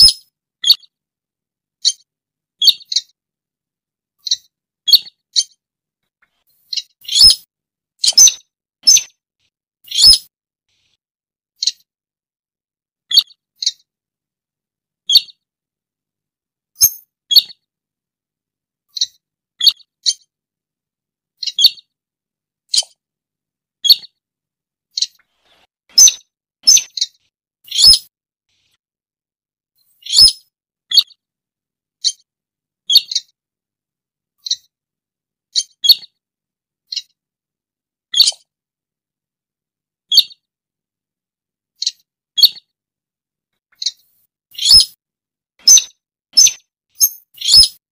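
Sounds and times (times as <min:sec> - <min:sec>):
bird giving sharp high calls: 0:27.7 - 0:28.1, 0:44.6 - 0:44.9.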